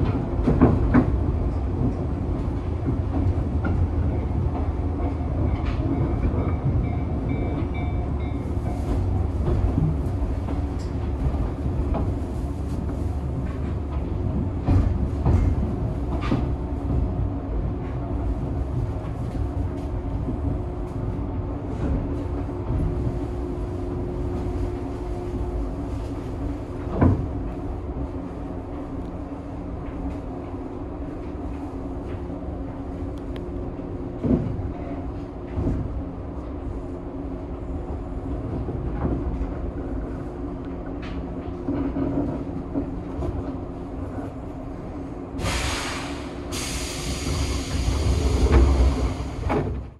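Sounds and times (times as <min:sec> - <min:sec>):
train car rumble and hum: 0:00.0 - 0:49.9
compressed air hisses: 0:45.4 - 0:49.4.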